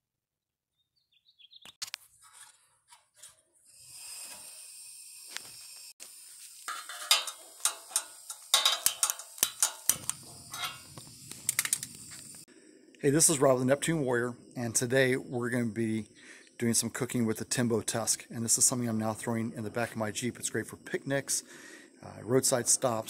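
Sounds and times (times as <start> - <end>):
gas burner hissing: 3.7 - 12.5
sharp clicks and knocks: 6.6 - 12.3.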